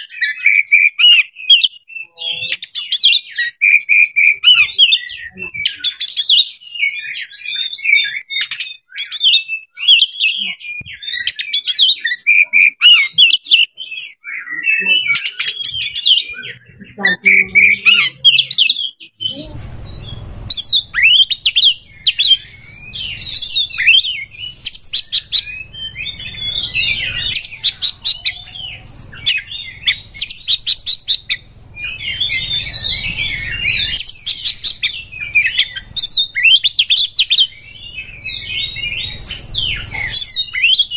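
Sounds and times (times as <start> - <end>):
bird singing whistled runs: 0.0 - 40.9
low background rumble: 19.2 - 40.9.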